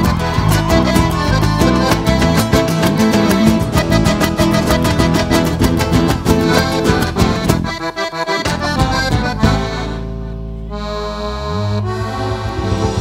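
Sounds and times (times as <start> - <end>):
folk band playing instrumental: 0.0 - 13.0.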